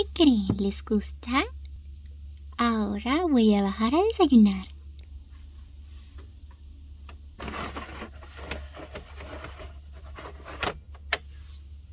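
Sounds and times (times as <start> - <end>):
steady low hum: 0.0 - 11.9
toy elevator plastic scraping: 7.4 - 10.8.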